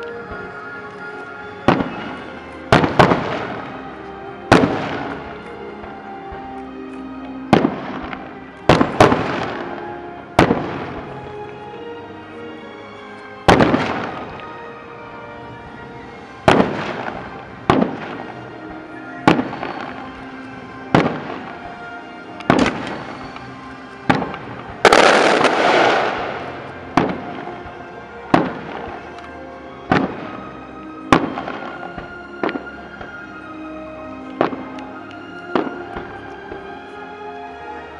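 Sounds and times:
faint music: 0.0 - 37.9
firework shells booming: 1.7 - 3.7, 4.5 - 5.4, 16.5 - 18.3, 20.9 - 21.7, 22.4 - 23.4, 24.0 - 29.1.

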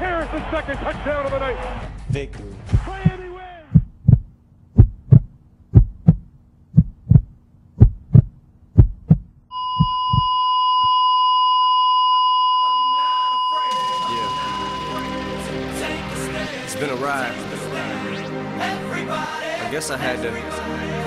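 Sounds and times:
heartbeat thumps: 1.9 - 10.4
steady high electronic tone: 9.5 - 18.4.

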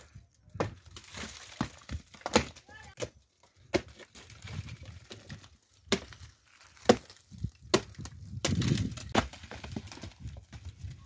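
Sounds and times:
firewood cracking: 0.0 - 11.0.

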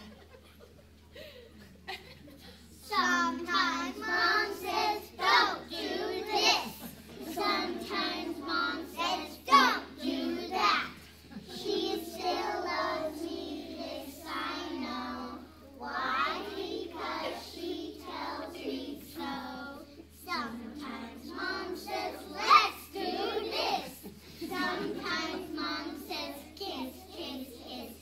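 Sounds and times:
children singing in unison: 2.9 - 19.8, 20.4 - 28.0.

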